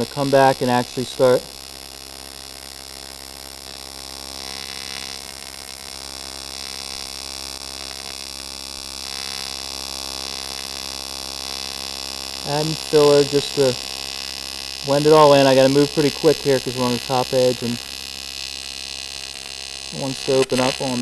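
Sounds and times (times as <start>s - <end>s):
welding arc buzzing: 0.0s - 21.0s.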